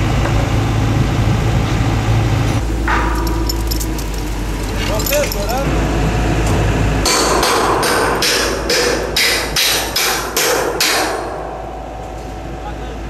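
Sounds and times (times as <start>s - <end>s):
hammer striking steel beam: 2.6s - 4.4s, 7.0s - 12.6s.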